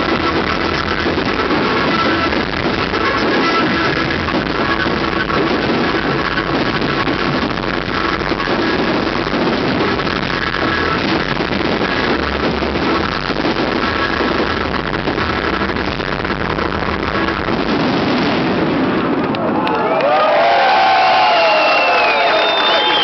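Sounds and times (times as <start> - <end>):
music playing: 0.0 - 18.4
fireworks: 0.0 - 19.8, 20.5 - 23.0.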